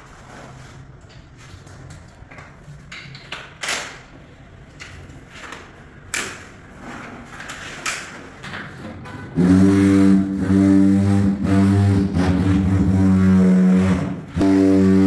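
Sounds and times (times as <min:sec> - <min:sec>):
floor tiling knocks and scrapes: 0:04.9 - 0:09.2.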